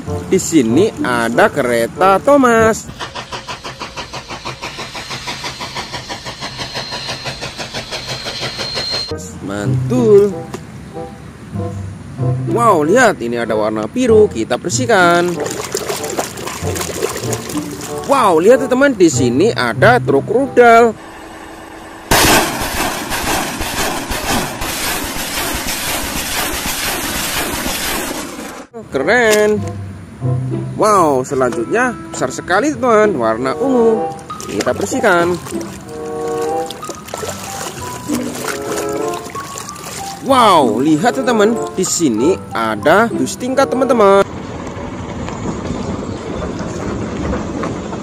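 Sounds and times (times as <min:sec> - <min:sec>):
steam locomotive exhaust chuffing: 0:01.6 - 0:09.2, 0:21.0 - 0:28.7, 0:34.1 - 0:42.5
rocket motor rushing: 0:21.7 - 0:28.7
rocket launch blast: 0:22.1 - 0:28.6.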